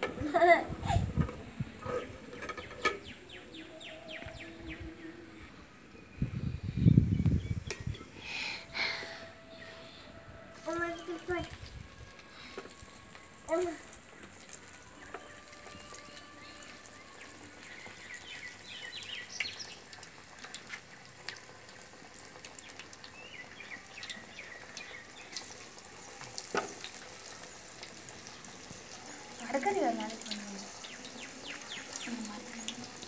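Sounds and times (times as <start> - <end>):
food sizzling in hot oil: 7.6 - 33.0.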